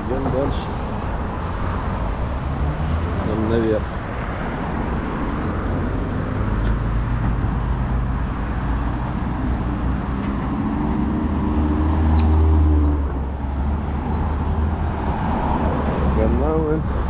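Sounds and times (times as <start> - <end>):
road noise rumble: 0.0 - 17.0
vehicle engine passing: 5.0 - 17.0.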